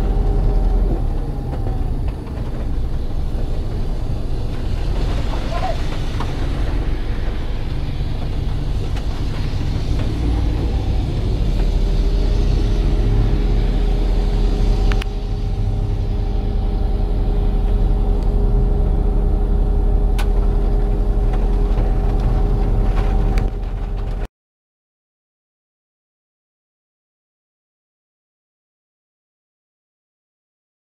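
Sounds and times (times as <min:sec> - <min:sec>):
engine rumbling: 0:00.0 - 0:24.3.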